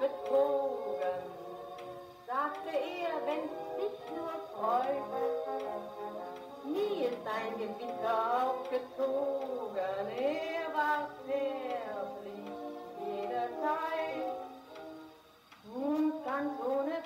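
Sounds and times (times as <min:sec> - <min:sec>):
gramophone record dance music: 0:00.0 - 0:17.0.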